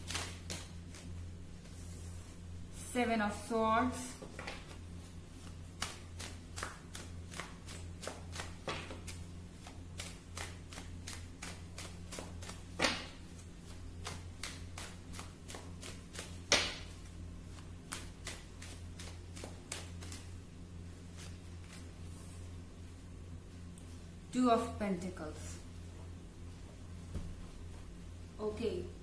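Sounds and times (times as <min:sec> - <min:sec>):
cards being shuffled: 0:00.0 - 0:01.8, 0:04.3 - 0:20.4, 0:21.1 - 0:21.9
low steady hum: 0:00.0 - 0:29.0
card slaps: 0:10.0 - 0:13.2, 0:14.0 - 0:17.0.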